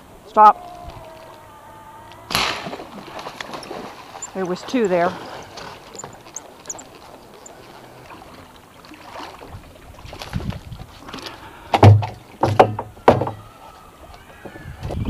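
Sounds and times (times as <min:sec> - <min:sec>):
fish knocking against boat: 0:11.7 - 0:13.5.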